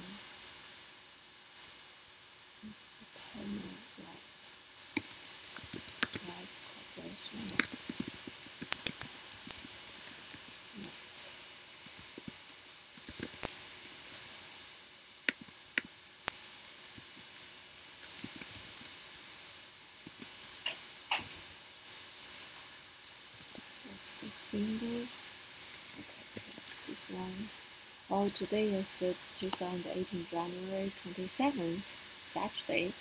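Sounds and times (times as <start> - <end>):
faint laptop fan whine: 0.0 - 33.0
mouse clicks: 5.0 - 6.5
computer keyboard keystrokes: 5.0 - 6.6, 7.3 - 11.0, 11.9 - 14.2, 16.7 - 19.3, 20.1 - 20.6, 23.1 - 23.7.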